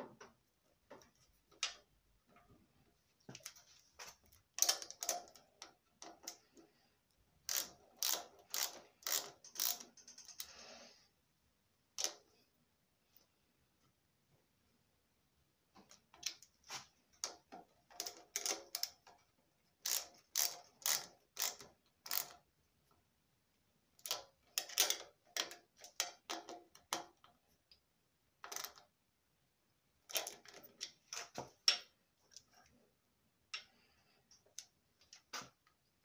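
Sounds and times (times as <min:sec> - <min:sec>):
metallic clicks and rattles: 0:03.4 - 0:06.6, 0:07.5 - 0:10.6, 0:17.2 - 0:22.4.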